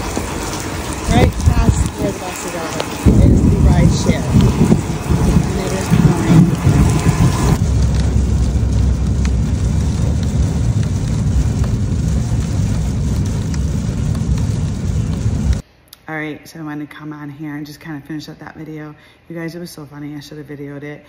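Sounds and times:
rain on car: 0:00.0 - 0:15.6
rain on walkway: 0:00.0 - 0:15.6
tyres rumbling on wet road: 0:00.0 - 0:15.6.

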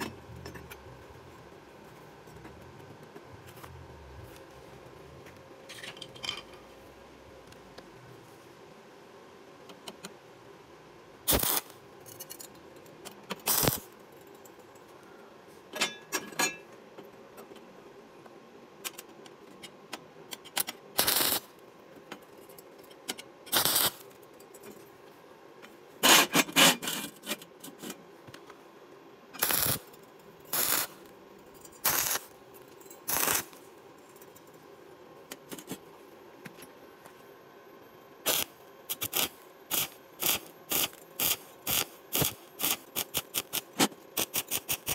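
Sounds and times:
welding arc bursts: 0:11.3 - 0:11.8, 0:13.4 - 0:13.9, 0:21.0 - 0:21.5, 0:23.5 - 0:24.0, 0:29.4 - 0:29.9, 0:30.5 - 0:31.1, 0:31.8 - 0:32.3, 0:33.1 - 0:33.6, 0:38.2 - 0:44.9.

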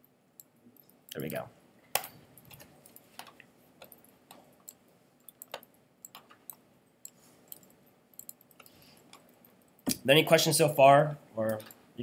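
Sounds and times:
computer mouse clicks: 0:02.0 - 0:09.4.

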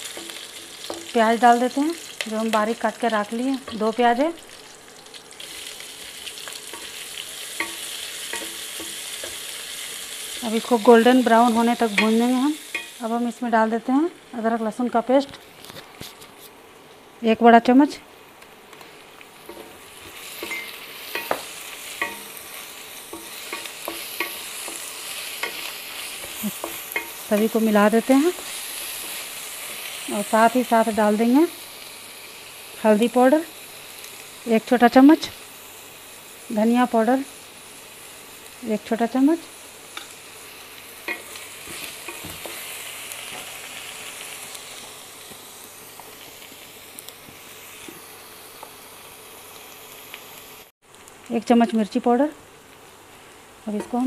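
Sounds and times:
spatula knocking and scraping pan: 0:00.0 - 0:01.2, 0:07.6 - 0:09.4, 0:19.5 - 0:22.4, 0:23.1 - 0:27.6, 0:41.1 - 0:42.6
onions sizzling in hot oil: 0:00.0 - 0:54.0
spatula stirring and scraping: 0:19.5 - 0:29.9.

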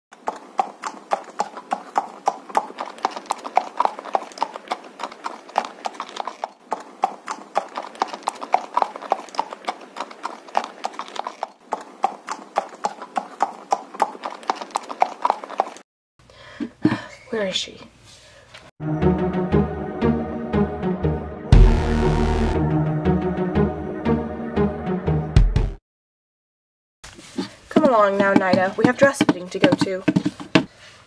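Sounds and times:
horse hooves clip-clopping: 0:00.1 - 0:15.8, 0:27.4 - 0:30.7.

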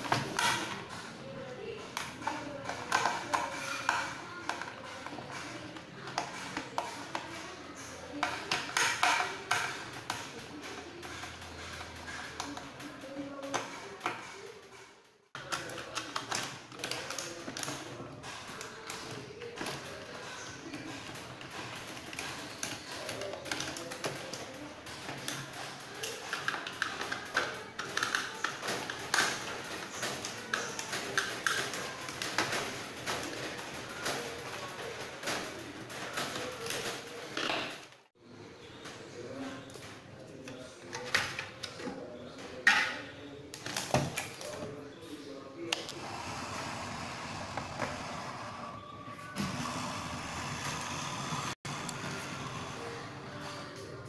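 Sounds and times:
plastic clicks and rattles: 0:08.1 - 0:38.0.

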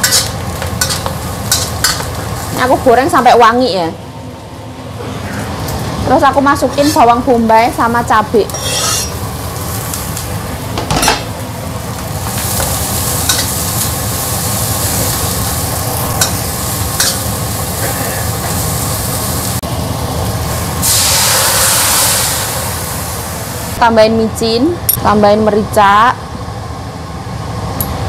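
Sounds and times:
metal spatula scraping wok: 0:00.0 - 0:02.0, 0:06.6 - 0:07.2, 0:08.5 - 0:09.2
food sizzling in a wok: 0:00.0 - 0:04.0, 0:05.8 - 0:24.5
water hissing on hot metal: 0:20.8 - 0:23.8.

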